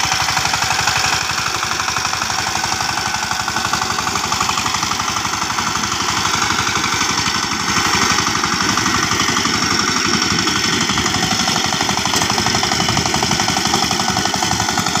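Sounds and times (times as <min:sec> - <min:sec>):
tiller diesel engine running: 0:00.0 - 0:15.0.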